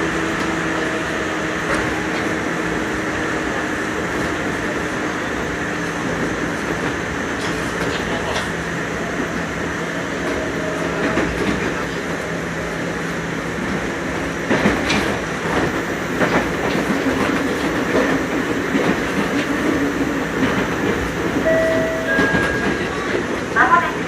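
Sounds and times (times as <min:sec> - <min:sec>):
electric train motor hum: 0:15.7 - 0:23.1.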